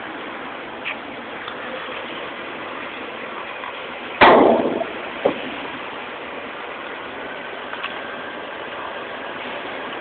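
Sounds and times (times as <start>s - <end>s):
loud sudden burst of noise: 4.2s - 5.8s.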